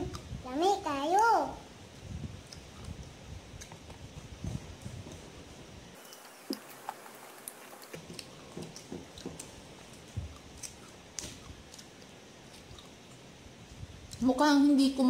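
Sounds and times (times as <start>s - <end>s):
chewing with short clicks and taps: 2.4s - 4.0s, 7.9s - 13.2s.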